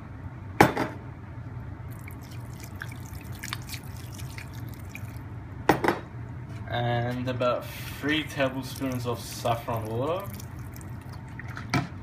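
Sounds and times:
juice pouring and dripping into bowl: 1.9s - 5.3s, 7.9s - 11.8s.

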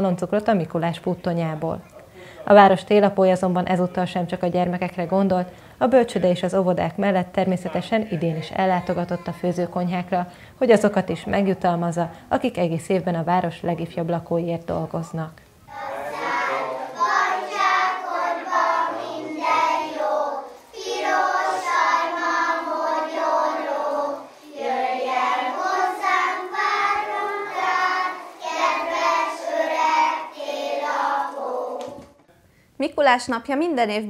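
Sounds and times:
children singing in chorus: 15.7s - 32.1s.

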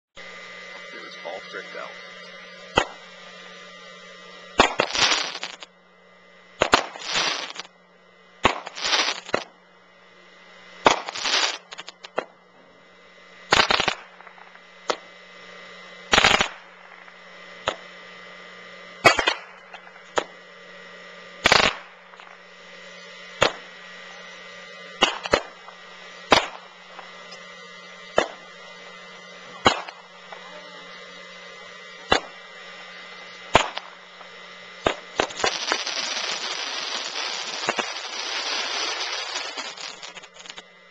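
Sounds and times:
firework bursts with crackle: 2.6s - 3.1s, 4.5s - 5.7s, 6.6s - 7.7s, 8.4s - 9.5s, 10.8s - 12.4s, 13.5s - 15.1s, 16.1s - 17.9s, 19.0s - 20.4s, 21.4s - 24.1s, 24.8s - 40.6s
firework sharp bangs: 2.7s - 3.1s, 4.6s - 5.6s, 6.6s - 7.7s, 8.4s - 9.5s, 10.8s - 12.3s, 13.5s - 15.1s, 16.1s - 17.8s, 19.0s - 20.4s, 21.4s - 22.3s, 23.4s - 23.7s, 25.0s - 27.1s, 28.1s - 28.6s, 29.5s - 30.5s, 32.0s - 32.4s, 33.5s - 40.6s.

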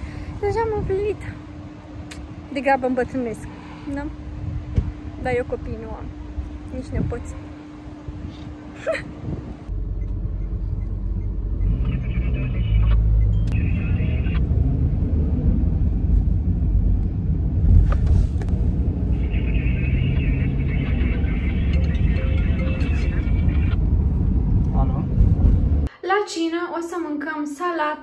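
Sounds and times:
car cabin rumble: 15.5s - 25.9s.

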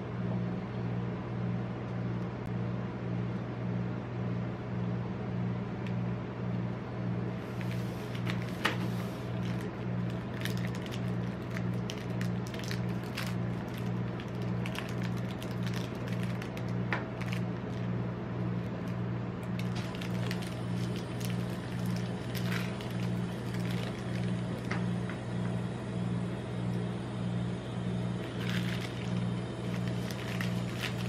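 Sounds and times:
cold plate machine humming: 0.0s - 31.0s
wrappers crinkling and tearing: 7.4s - 18.0s, 18.6s - 24.8s, 28.2s - 31.0s.

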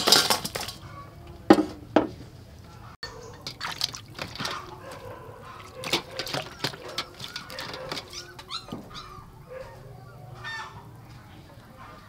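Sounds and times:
water splashing and dripping: 3.2s - 9.0s.

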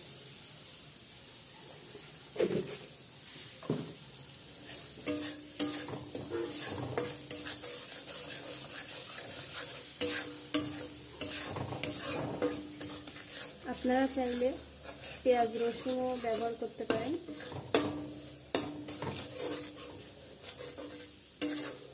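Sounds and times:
spices sizzling in oil: 0.0s - 21.9s
metal spatula scraping pan: 4.6s - 21.9s.

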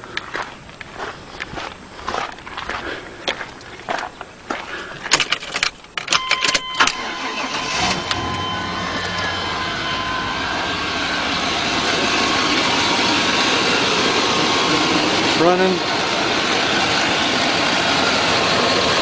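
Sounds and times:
car engine starting and running: 5.6s - 19.0s
steady beeping tone: 6.1s - 19.0s.

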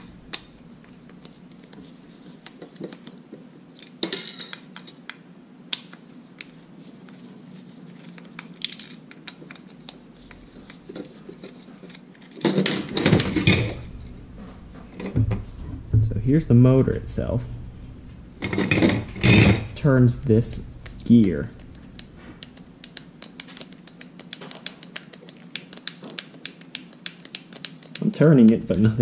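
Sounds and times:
metal scraping and rattling: 12.4s - 22.5s.

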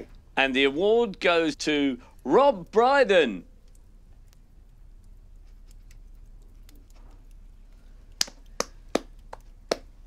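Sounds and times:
person clapping slowly: 8.2s - 10.0s.

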